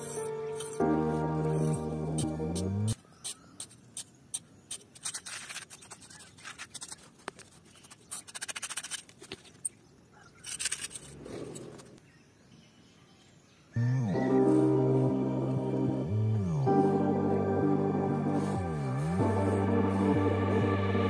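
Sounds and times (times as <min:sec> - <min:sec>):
background music: 0:00.0 - 0:03.0, 0:13.9 - 0:21.0
metal tool scraping sandy soil: 0:00.0 - 0:09.6.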